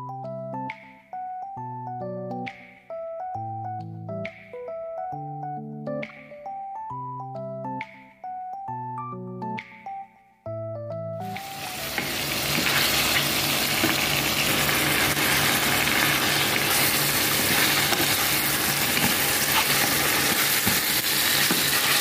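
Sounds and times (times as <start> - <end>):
onions and chicken sizzling in oil: 11.2 - 22.0.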